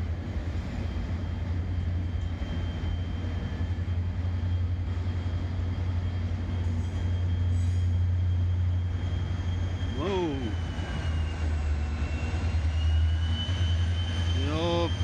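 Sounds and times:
freight train wagons rumbling: 0:00.0 - 0:15.0
high-pitched whine: 0:05.8 - 0:15.0.

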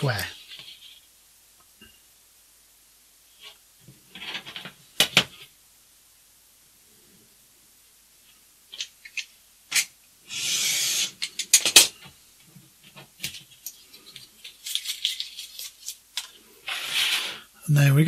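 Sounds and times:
paper rustling: 0:12.8 - 0:17.5.

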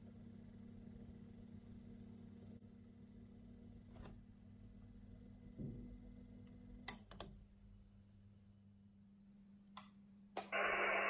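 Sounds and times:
sharp clicks: 0:09.8 - 0:10.6
radio receiver hiss: 0:10.4 - 0:11.0.

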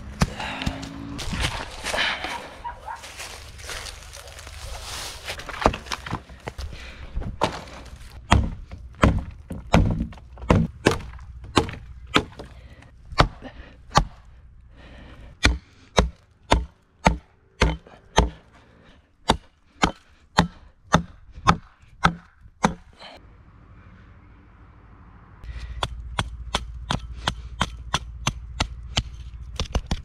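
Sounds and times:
hatchet chopping wooden pole: 0:00.0 - 0:01.6, 0:07.4 - 0:14.3, 0:15.4 - 0:18.5, 0:19.2 - 0:23.2, 0:25.6 - 0:30.0.

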